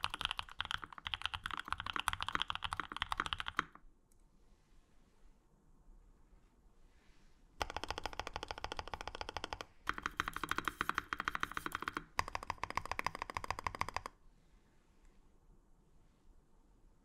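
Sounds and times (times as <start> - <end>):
mechanical keyboard key presses: 0.0 - 3.7, 7.6 - 14.1.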